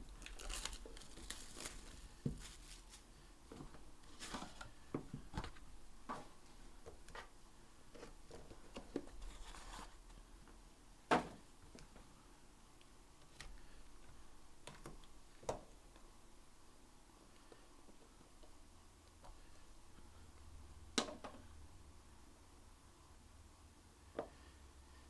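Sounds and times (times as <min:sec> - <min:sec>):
cardboard box and plastic rustling: 0:00.1 - 0:05.6, 0:08.0 - 0:10.0.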